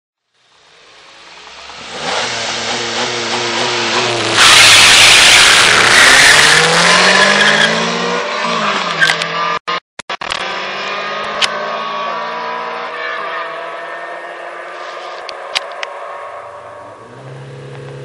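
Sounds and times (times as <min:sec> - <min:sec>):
cars accelerating hard: 0:01.2 - 0:09.8, 0:10.4 - 0:18.0
tyres squealing: 0:03.9 - 0:07.9.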